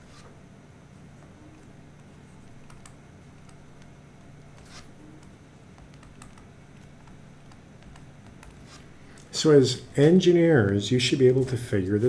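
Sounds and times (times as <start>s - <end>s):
steady low hum: 0.0s - 12.0s
stylus scratching on tablet screen: 3.4s - 8.9s.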